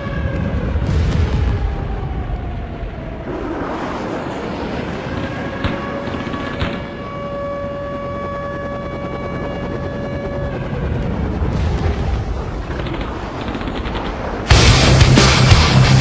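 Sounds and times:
steady whining tone: 2.1s - 16.0s
helicopter engine and rotor: 3.2s - 16.0s.

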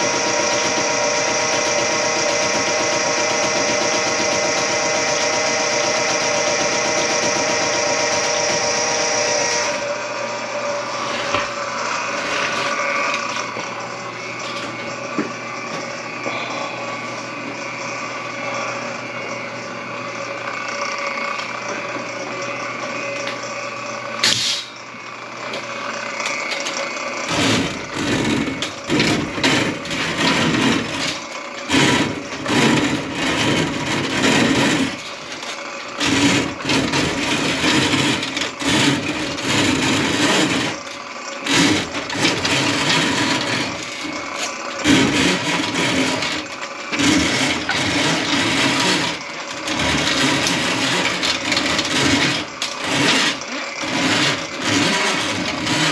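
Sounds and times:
steady hum: 0.0s - 54.6s
drain snake motor bursts: 0.0s - 55.9s
sharp click: 24.2s - 24.7s.

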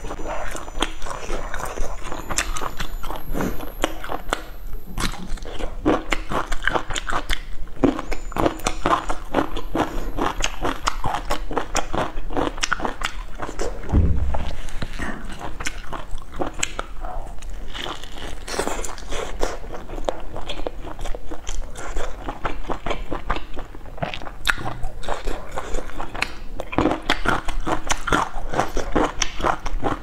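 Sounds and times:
person crunching crispy food: 17.4s - 30.0s.

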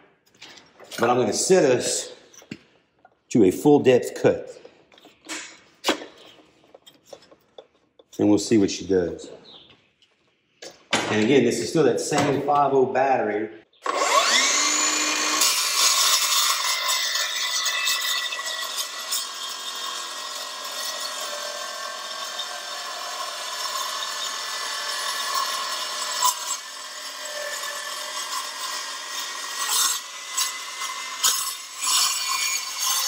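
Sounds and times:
circular saw motor whining: 13.8s - 32.8s
saw cutting metal rasp: 13.9s - 33.0s.

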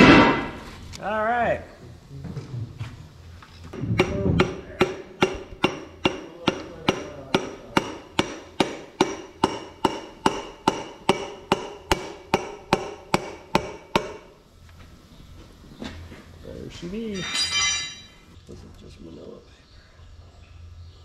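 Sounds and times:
hammer handle tapping piston: 4.0s - 14.2s.

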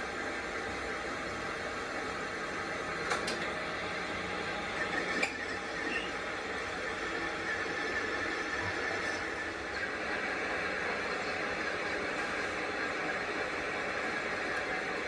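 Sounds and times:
metal lathe running: 3.7s - 15.0s.

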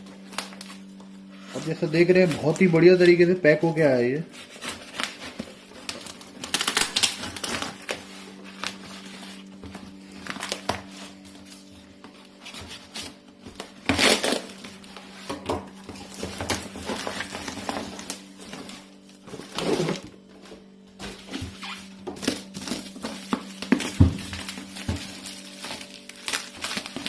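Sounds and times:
cardboard flaps rustling and tearing: 4.3s - 27.0s
knife cutting tape and cardboard: 12.3s - 14.7s.

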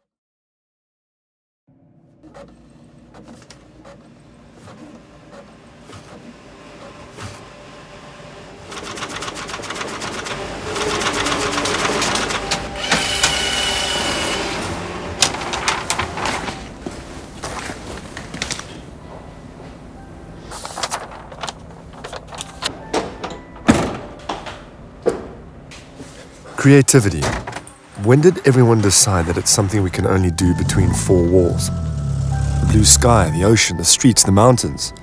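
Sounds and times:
printer clicking and clattering: 8.6s - 16.7s
high steady tone: 29.8s - 35.0s.

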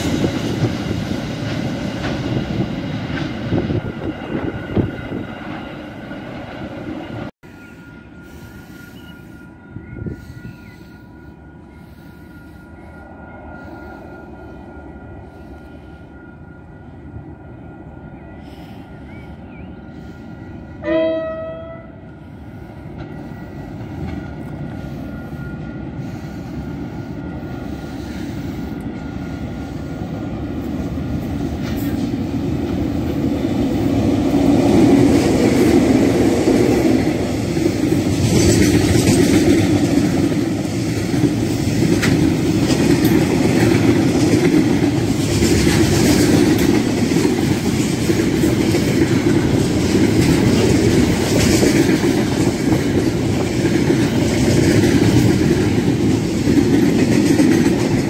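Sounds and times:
train wheels clattering on rails: 0.0s - 7.3s, 22.8s - 58.0s
train horn blast: 20.4s - 22.5s.

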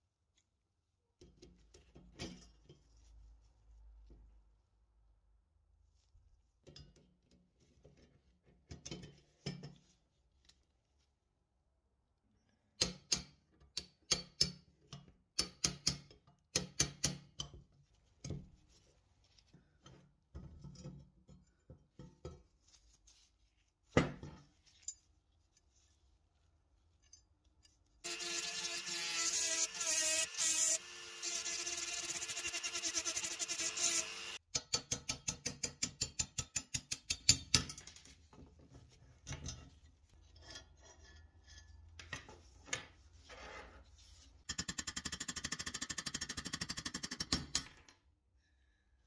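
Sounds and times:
handheld power tool running: 28.0s - 34.4s.

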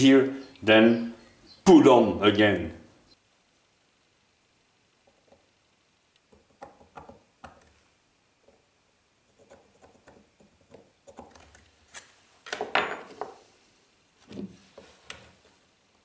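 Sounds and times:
tools clattering on workbench: 12.5s - 13.4s.

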